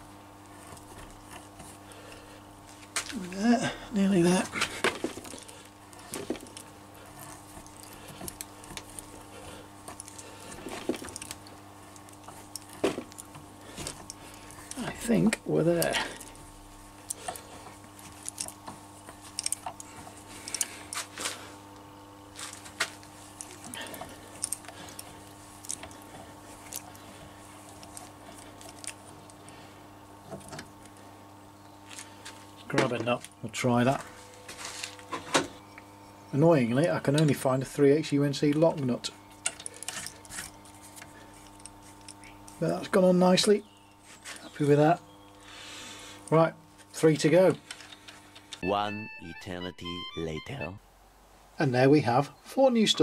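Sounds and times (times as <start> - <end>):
faint steady hum: 0.0 - 53.0.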